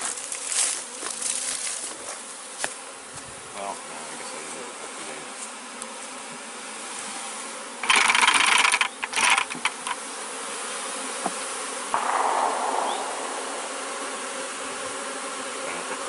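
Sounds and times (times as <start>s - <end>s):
soft rustle: 0.0s - 4.7s
bee swarm buzzing: 0.0s - 16.0s
loud rush of bees tipped out: 11.3s - 15.5s.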